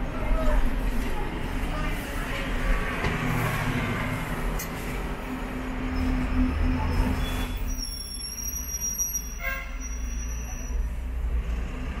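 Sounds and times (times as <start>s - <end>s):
tram rumbling: 0.0s - 12.0s
tram wheels squealing on rails: 5.6s - 11.0s.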